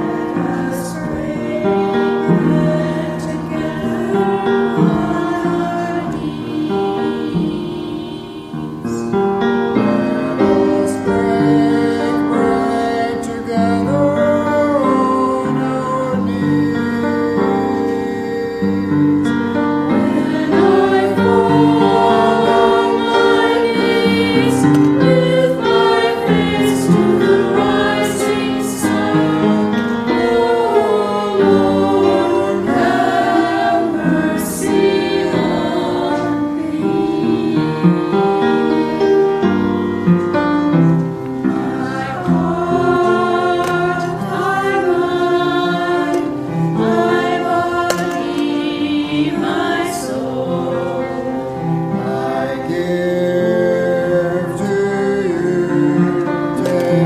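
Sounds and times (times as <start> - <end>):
choir singing: 0.0 - 57.0.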